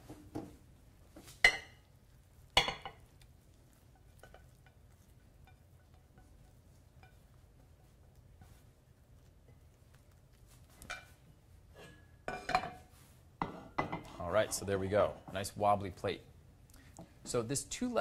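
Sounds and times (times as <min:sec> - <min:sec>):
kitchenware clinking: 0:01.4 - 0:01.9, 0:02.6 - 0:03.1, 0:03.9 - 0:07.3, 0:10.8 - 0:15.5
spatula scraping: 0:02.6 - 0:12.2.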